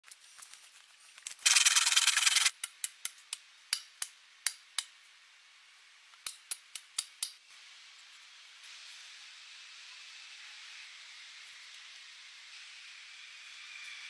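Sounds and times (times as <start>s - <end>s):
rough rasping scrape: 1.4s - 2.5s.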